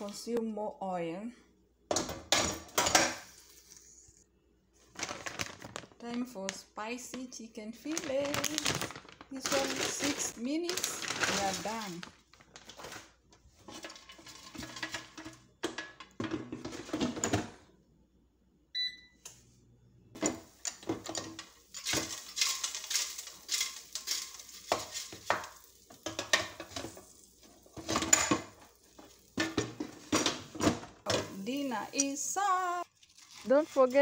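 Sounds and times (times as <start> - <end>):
short electronic beep: 18.8 - 19.2.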